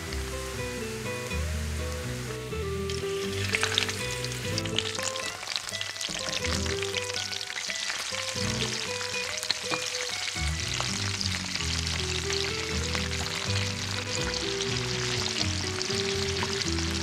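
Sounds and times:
shrimp sizzling in oil: 0.0s - 17.0s
soft background music: 0.0s - 17.0s.

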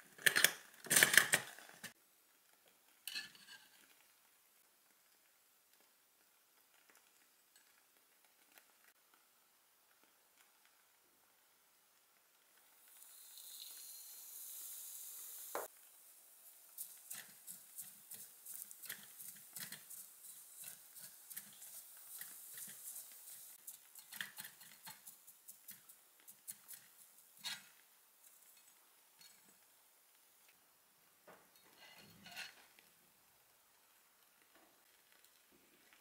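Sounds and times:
bread crumbs sizzling in hot oil: 2.1s - 36.0s
spatula stirring and scraping pan: 12.8s - 29.6s, 31.6s - 32.9s.

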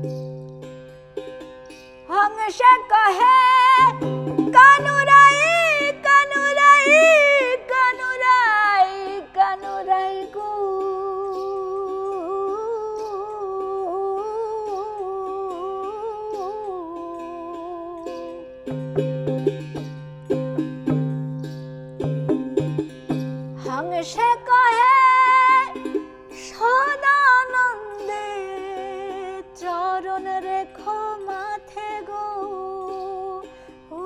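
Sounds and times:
plucked one-string drone: 0.0s - 34.0s
woman singing with vibrato: 2.1s - 18.4s, 23.6s - 34.0s.

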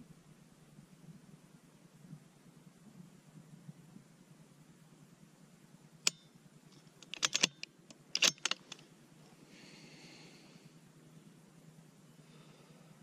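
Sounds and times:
rifle action clicks: 7.0s - 8.8s
rifle dry-fire click: 7.0s - 8.8s.

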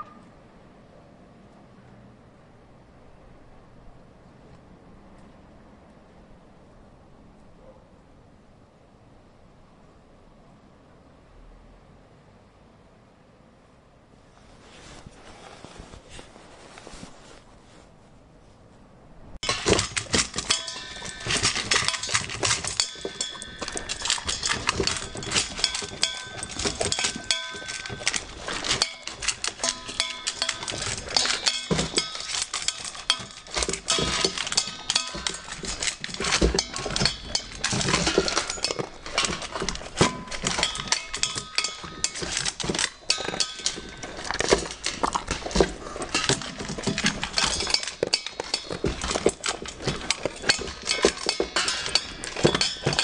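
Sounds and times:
dog crunching food: 19.4s - 53.0s.

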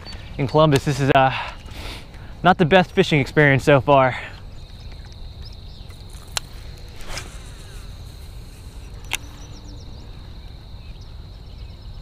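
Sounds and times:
high-pitched insect drone: 4.0s - 12.0s.

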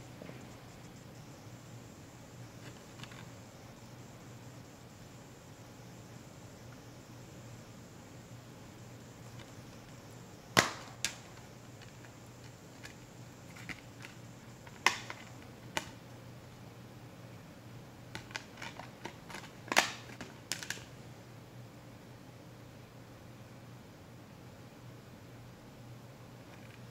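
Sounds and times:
plastic case snapping: 12.8s - 16.0s, 18.2s - 20.9s.

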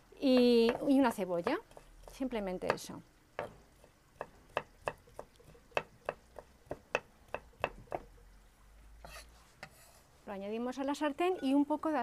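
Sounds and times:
knife chopping on wooden board: 0.3s - 2.8s, 3.4s - 8.1s.

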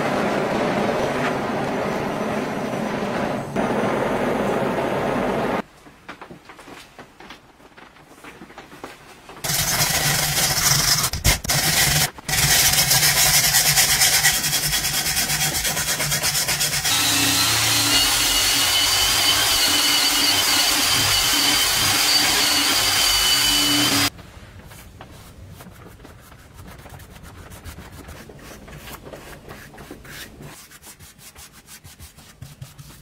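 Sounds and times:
wire brush scraping wood: 9.4s - 16.9s
cordless drill whining: 16.9s - 24.1s.

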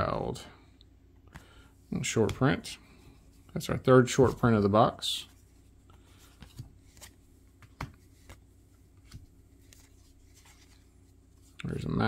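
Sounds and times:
cards flicking and sliding: 6.3s - 10.9s.

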